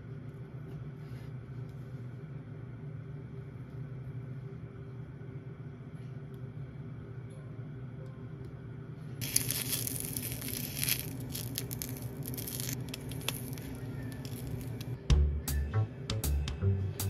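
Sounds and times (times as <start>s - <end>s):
steady low hum: 0.0s - 17.0s
sausages sizzling in oil: 9.2s - 14.8s.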